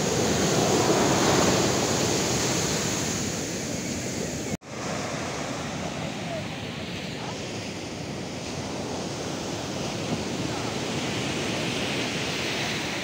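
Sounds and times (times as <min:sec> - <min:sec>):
sea surf breaking: 0:00.0 - 0:13.0
wind buffeting microphone: 0:00.0 - 0:13.0.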